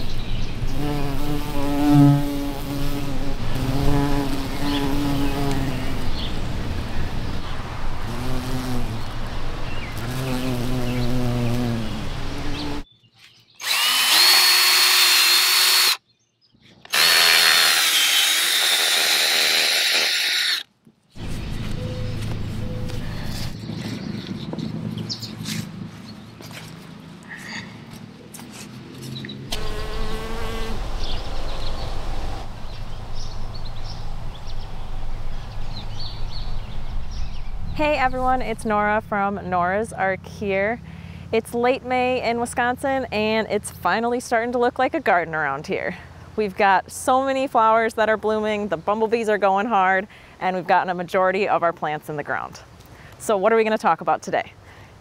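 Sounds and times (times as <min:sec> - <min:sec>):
birds chirping: 0:00.0 - 0:02.2, 0:03.0 - 0:14.5, 0:21.1 - 0:39.6
bee buzzing: 0:00.0 - 0:06.5, 0:07.8 - 0:12.9, 0:13.6 - 0:16.0, 0:29.5 - 0:32.5
power tool motor whining: 0:13.6 - 0:16.0, 0:16.9 - 0:20.7, 0:29.5 - 0:30.8.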